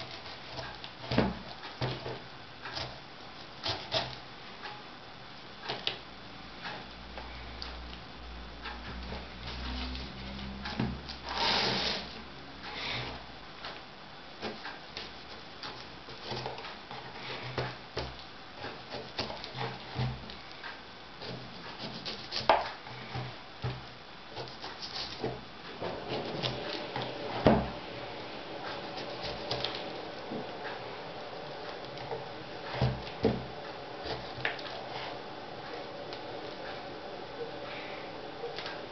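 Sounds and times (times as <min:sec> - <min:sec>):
knife scraping through pineapple skin: 0:11.2 - 0:12.1, 0:21.2 - 0:22.7.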